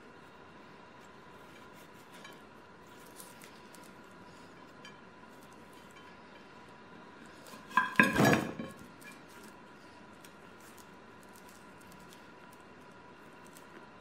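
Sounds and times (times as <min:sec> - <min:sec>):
ceramic platter clinking and rattling: 0:07.7 - 0:09.1.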